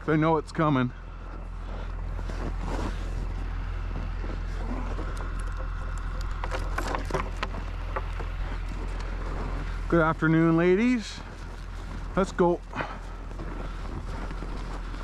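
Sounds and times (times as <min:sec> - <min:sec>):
steady low rumble: 0:00.0 - 0:15.0
scuffing in snow: 0:01.2 - 0:05.2, 0:08.2 - 0:15.0.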